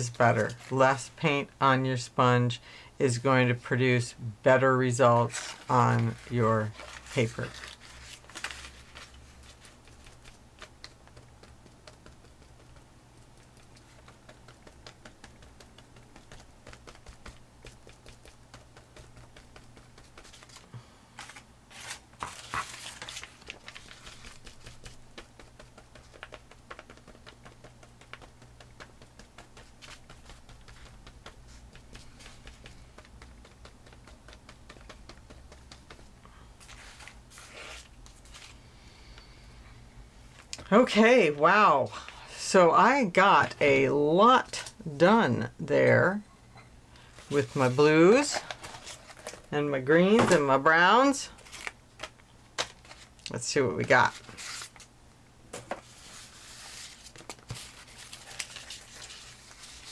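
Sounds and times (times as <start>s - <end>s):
paper rustling: 0.0s - 1.1s, 5.0s - 38.7s, 47.0s - 50.4s, 51.0s - 53.2s, 53.8s - 54.9s, 55.5s - 59.9s
sponge tapping on paper: 9.9s - 20.4s, 23.7s - 36.2s.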